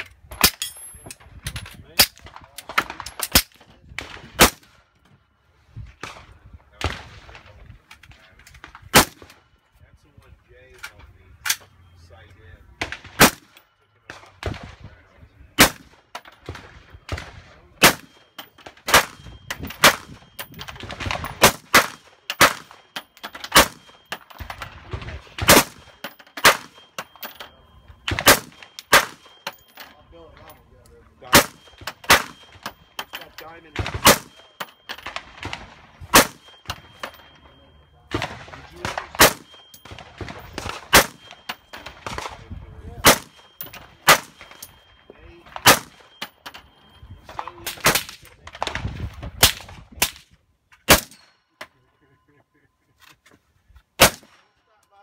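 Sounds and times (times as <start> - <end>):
suppressed rifle shots: 23.5 - 26.9, 28.0 - 29.4, 33.7 - 37.4, 38.1 - 44.6, 45.6 - 46.2, 54.0 - 54.4.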